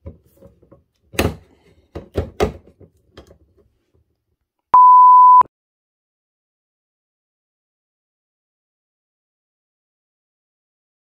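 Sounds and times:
electronic bleep: 4.8 - 5.5.

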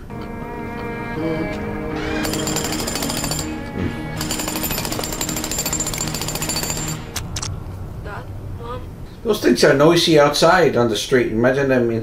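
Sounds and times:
dramatic score music: 0.0 - 9.5
jackhammer hammering: 1.9 - 7.3.

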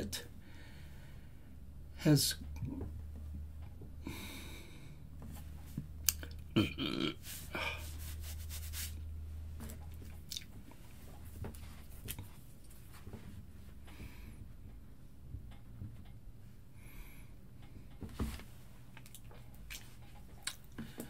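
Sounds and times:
low steady hum: 0.0 - 21.0
man's mouth clicks and lip smacks: 6.0 - 6.5, 10.1 - 10.6, 19.0 - 20.8.

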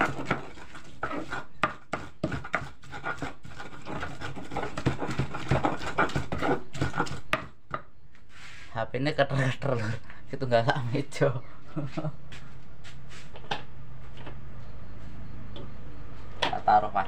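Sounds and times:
pestle grinding in mortar: 0.0 - 8.0.

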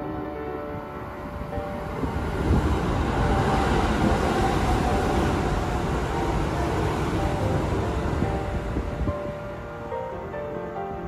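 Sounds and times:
train wheels rumbling on rail: 1.4 - 9.4.

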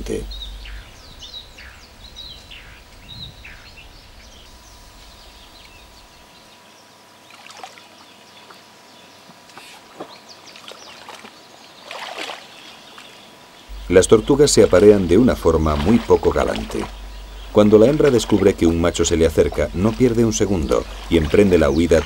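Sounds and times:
small birds chirping: 0.0 - 22.0
water sloshing and dripping: 7.3 - 8.0, 9.5 - 22.0.

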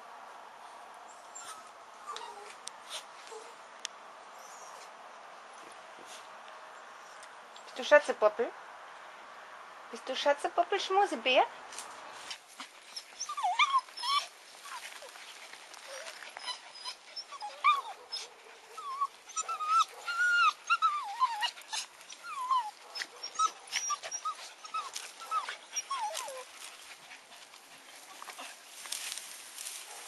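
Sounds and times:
dog whining: 1.3 - 2.6, 12.9 - 14.8, 15.8 - 26.5.

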